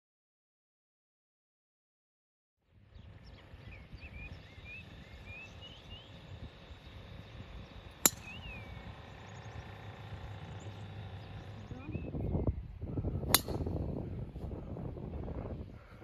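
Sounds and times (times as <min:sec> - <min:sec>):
outdoor background noise: 0:02.6 - 0:16.0
bird chirping rising notes: 0:02.7 - 0:15.8
golf club striking ball: 0:07.6 - 0:11.6, 0:13.2 - 0:14.0.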